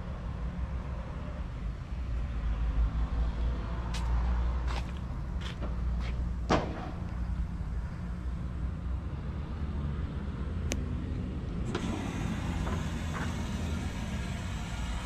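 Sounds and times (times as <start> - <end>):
hydraulic power unit humming: 11.6 - 15.0.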